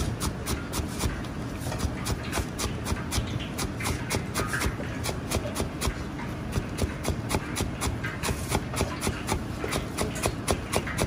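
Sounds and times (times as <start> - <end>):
cleaver chopping on cutting board: 6.8 - 11.0.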